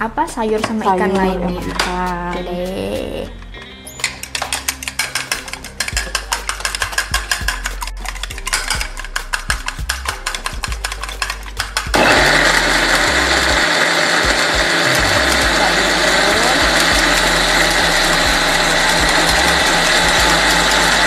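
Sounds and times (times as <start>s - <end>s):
fork clicking against bowl: 4.0s - 11.9s
electric blender running: 11.8s - 21.0s.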